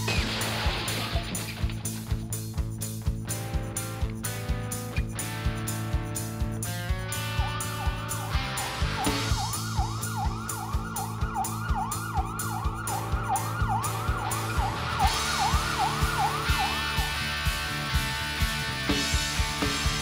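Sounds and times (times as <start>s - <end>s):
drum kit: 0.0s - 20.0s
electric bass: 0.0s - 20.0s
siren-like wail: 7.2s - 17.3s.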